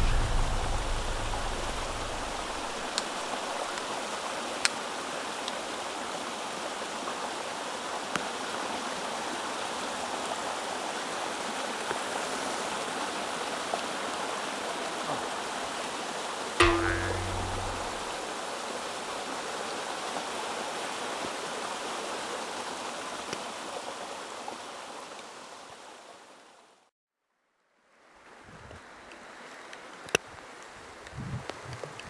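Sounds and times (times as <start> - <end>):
deep sound: 0.0 - 2.9, 16.6 - 18.2.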